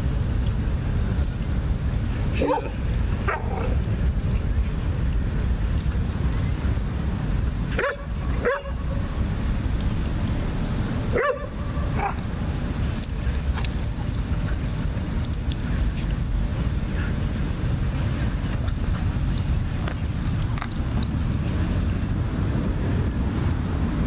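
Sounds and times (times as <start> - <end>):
dogs yipping: 2.4 - 4.5, 7.7 - 8.9, 11.1 - 12.4.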